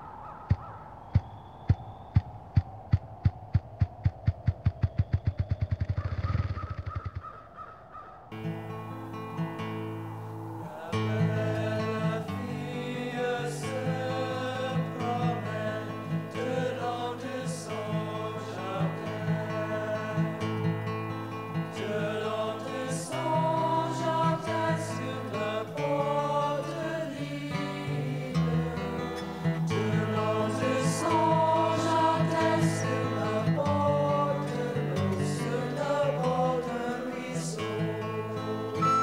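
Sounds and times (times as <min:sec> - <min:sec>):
voices singing held notes: 0:09.0 - 0:39.0.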